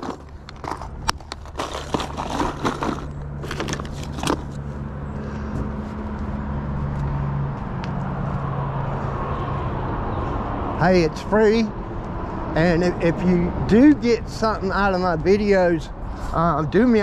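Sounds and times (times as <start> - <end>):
plastic box clicking and rattling: 0.0 - 4.6
road traffic hum: 0.0 - 17.0.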